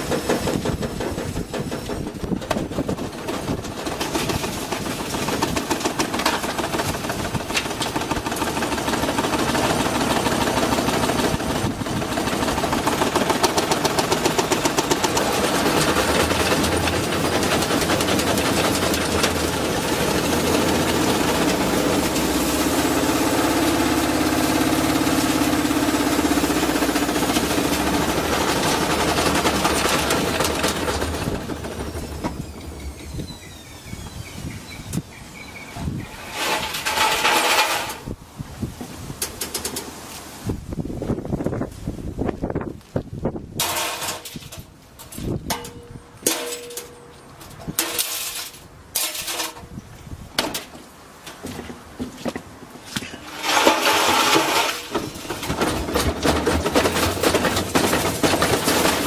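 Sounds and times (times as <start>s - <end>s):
motor hum: 0.0s - 37.1s
steady whine: 0.0s - 38.2s
washing machine drum clattering: 53.3s - 59.0s.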